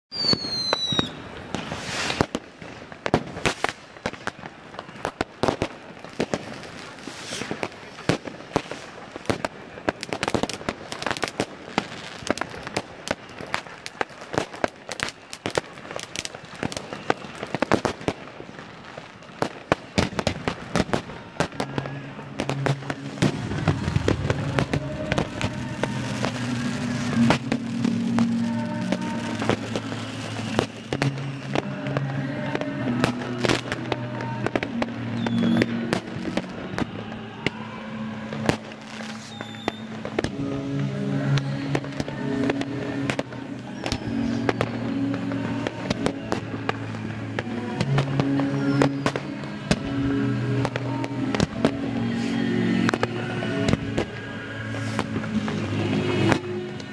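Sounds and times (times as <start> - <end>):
falling firework whistle: 0.1 - 2.8, 3.4 - 40.4, 42.5 - 56.4
firework bangs and crackles: 0.1 - 56.9.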